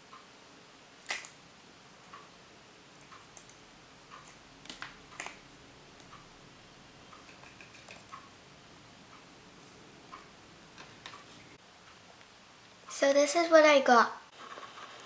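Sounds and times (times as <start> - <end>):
plastic capsule clicks: 4.7 - 5.4.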